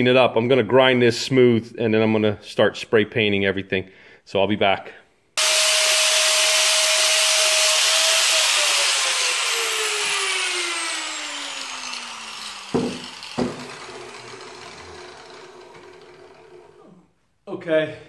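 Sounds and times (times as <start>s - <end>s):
angle grinder grinding steel: 5.4s - 17.0s.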